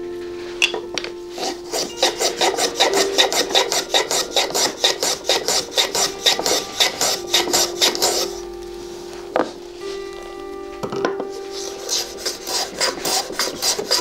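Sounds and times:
hand tool scraping wood: 0:01.3 - 0:08.4, 0:11.5 - 0:14.0.

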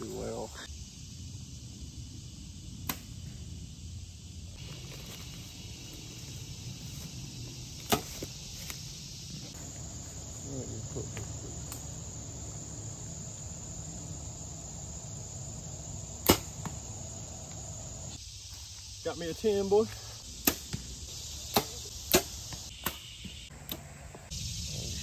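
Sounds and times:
high insect buzz: 0:00.0 - 0:25.0
bow string snapping: 0:02.8 - 0:03.1, 0:16.2 - 0:16.5.

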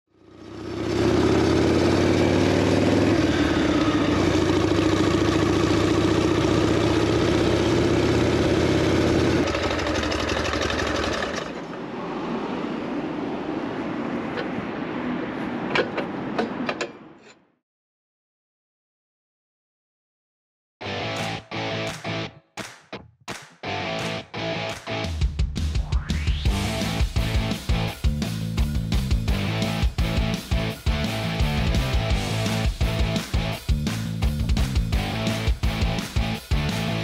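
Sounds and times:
motorcycle engine running: 0:00.1 - 0:11.6
street sound: 0:00.2 - 0:17.6, 0:20.8 - 0:37.0.

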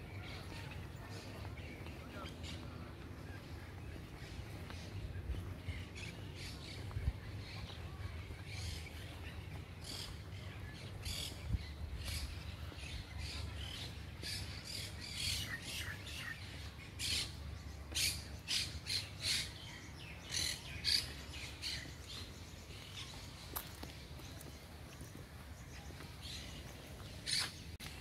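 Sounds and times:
birds chirping and squawking: 0:25.7 - 0:27.8.

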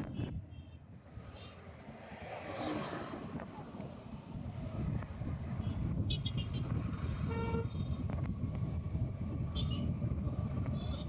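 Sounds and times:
engine and wind rumble: 0:00.0 - 0:11.0
vehicle horn: 0:05.6 - 0:08.0.

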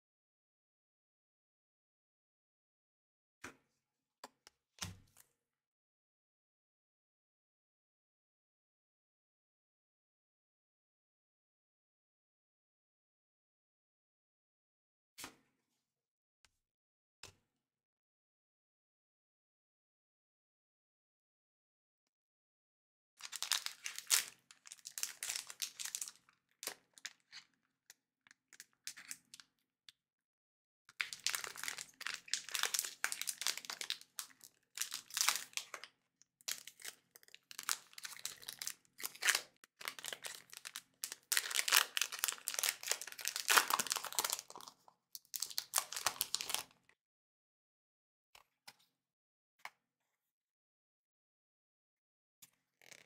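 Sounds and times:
foil wrapper crinkling and tearing: 0:23.2 - 0:27.4, 0:31.0 - 0:35.9, 0:36.5 - 0:46.7.

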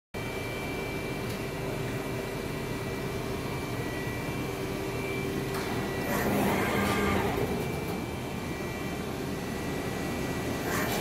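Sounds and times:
hydraulic machine humming: 0:02.6 - 0:11.0.

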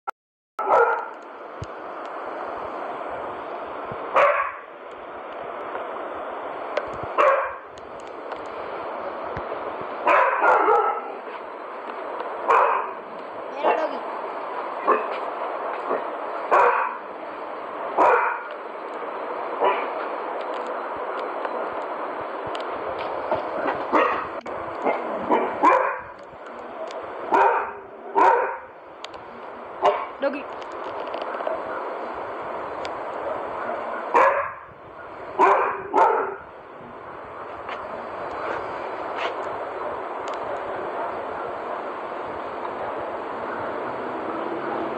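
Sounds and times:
dog barking: 0:00.6 - 0:01.2, 0:04.2 - 0:04.6, 0:07.2 - 0:07.6, 0:10.0 - 0:11.4, 0:12.5 - 0:13.0, 0:13.6 - 0:13.9, 0:14.8 - 0:15.2, 0:15.9 - 0:17.0, 0:18.0 - 0:18.5, 0:19.6 - 0:20.0, 0:23.6 - 0:26.1, 0:27.3 - 0:28.7, 0:29.8 - 0:30.2, 0:33.7 - 0:34.6, 0:35.4 - 0:36.4
steady background noise: 0:00.6 - 0:44.9.

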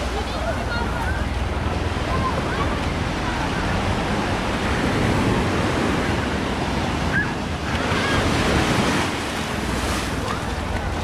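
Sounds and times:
small waves breaking on sand: 0:02.9 - 0:11.0.

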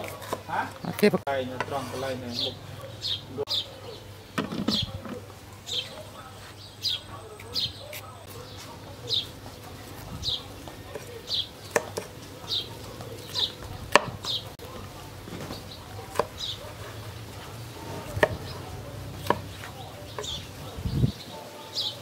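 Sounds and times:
bird chirping: 0:00.6 - 0:14.6, 0:15.4 - 0:22.0
cleaver chopping on wooden board: 0:11.7 - 0:12.1, 0:13.9 - 0:14.4, 0:16.0 - 0:16.5, 0:17.8 - 0:20.4.

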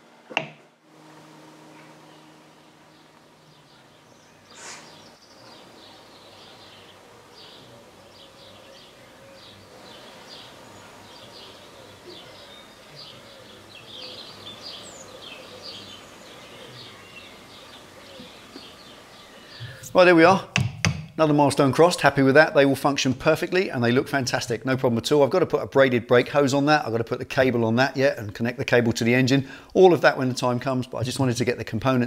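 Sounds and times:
birds chirping: 0:01.0 - 0:32.0
burst of noise: 0:04.4 - 0:05.8.

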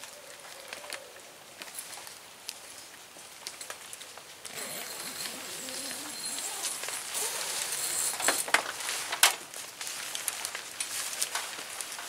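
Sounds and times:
nylon tent fabric rustling: 0:04.5 - 0:12.0.

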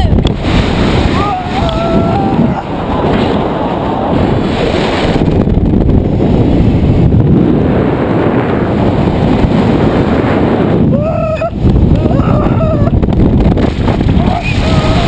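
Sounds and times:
wind rushing over microphone: 0:00.0 - 0:15.0
person yelling: 0:01.1 - 0:02.7, 0:10.9 - 0:12.9, 0:14.2 - 0:15.0.

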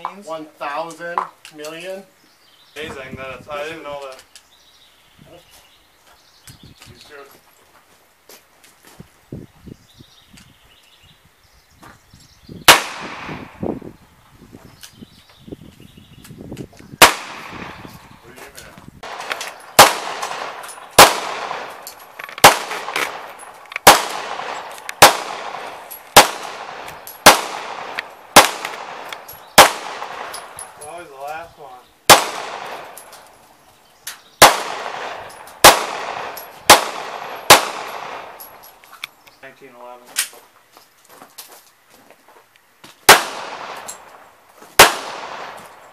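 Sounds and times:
pistol shots echoing: 0:12.7 - 0:13.6, 0:17.0 - 0:18.2, 0:19.0 - 0:30.8, 0:32.1 - 0:33.3, 0:34.4 - 0:38.6, 0:43.1 - 0:44.2, 0:44.8 - 0:45.9.

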